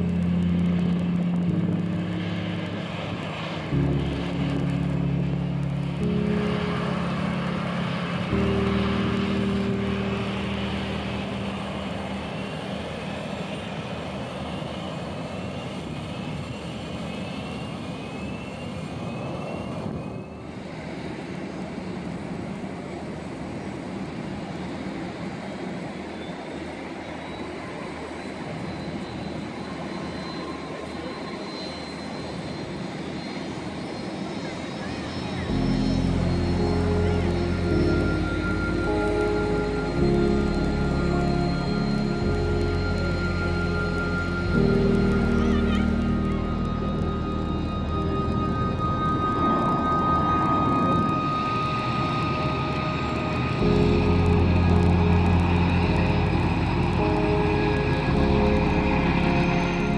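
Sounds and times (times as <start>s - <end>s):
low held chords music: 0.0s - 14.4s, 35.4s - 59.9s
jet engines roaring: 0.0s - 59.9s.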